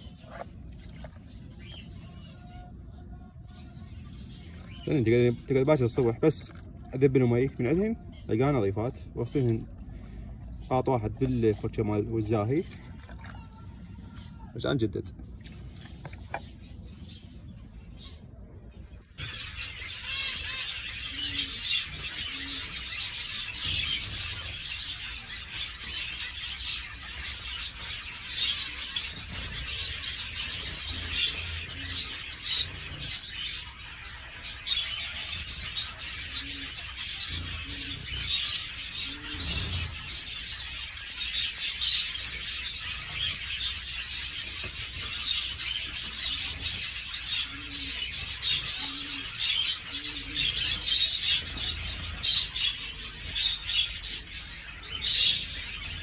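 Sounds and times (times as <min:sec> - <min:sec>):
finches chirping and calling: 0:00.0 - 0:12.6, 0:13.7 - 0:56.0
pigeon cooing: 0:19.2 - 0:41.0, 0:42.2 - 0:56.0.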